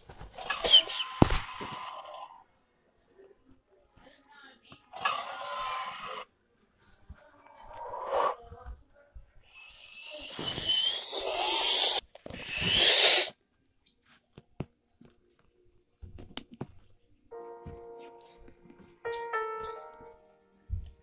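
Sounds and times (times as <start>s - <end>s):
hissing dinosaur roars: 9.7s - 13.3s
piano music: 17.3s - 21.0s.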